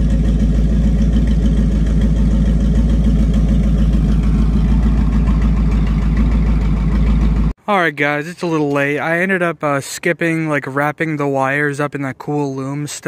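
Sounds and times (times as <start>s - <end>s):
pickup truck engine idling: 0.0s - 7.6s.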